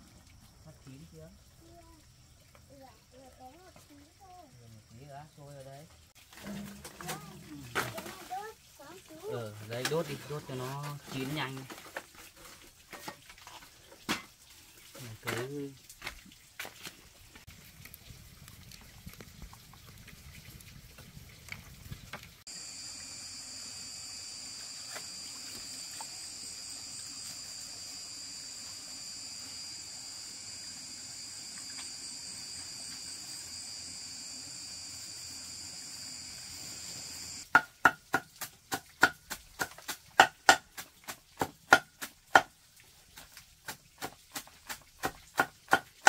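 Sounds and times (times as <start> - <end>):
high insect buzz: 22.5 - 37.4.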